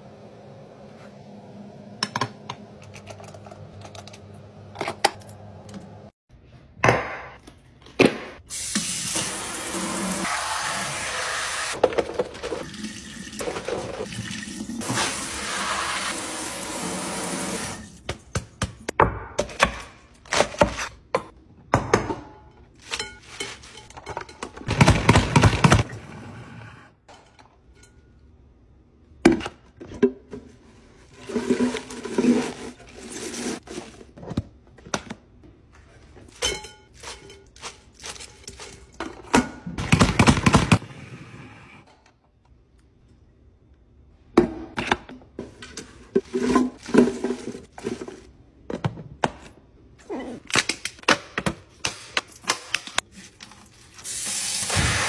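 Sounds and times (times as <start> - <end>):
faucet sprayer running into sink: 12.7 - 17.9.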